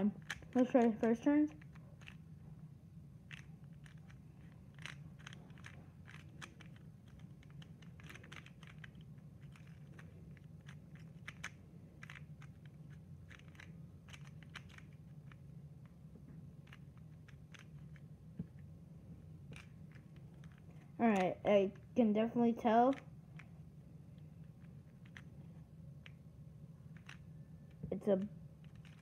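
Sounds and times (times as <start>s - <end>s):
plastic puzzle layers clicking: 0.2s - 2.3s, 3.2s - 16.0s, 16.6s - 18.6s, 19.5s - 22.0s, 24.1s - 25.4s, 26.9s - 27.9s, 28.6s - 29.0s.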